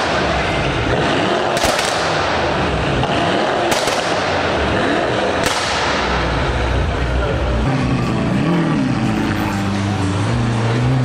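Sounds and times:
exhaust cracks: 0.0s - 8.3s
car engine revving: 0.0s - 11.0s.

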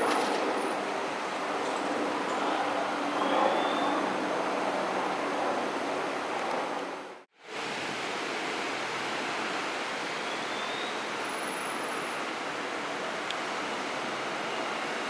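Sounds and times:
distant diesel locomotives: 0.0s - 15.0s.

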